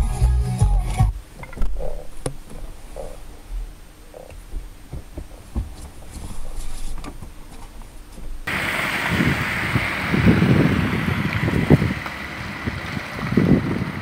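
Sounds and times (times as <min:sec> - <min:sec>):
low steady rumble: 0:00.0 - 0:14.0
muffled knocks and clicks: 0:01.4 - 0:08.5
clothing brushing: 0:01.7 - 0:08.5.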